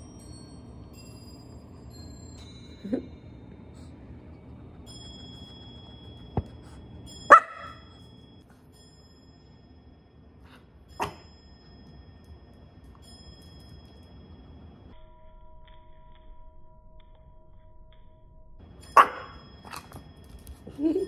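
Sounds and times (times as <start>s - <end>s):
small dog barking: 7.3s - 7.9s, 19.0s - 19.4s.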